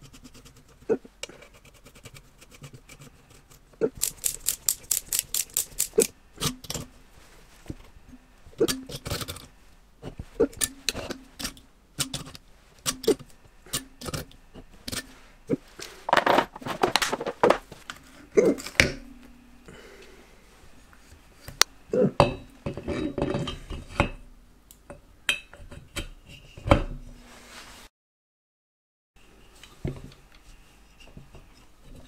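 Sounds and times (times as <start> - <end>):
ratcheting spanner clicking: 4.0 - 6.1.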